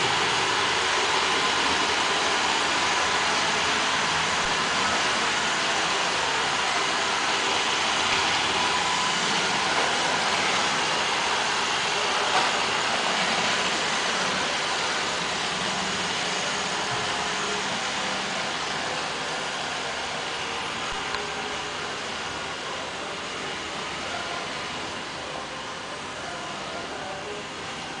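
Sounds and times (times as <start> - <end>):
robot vacuum whirring: 0.0 - 21.6.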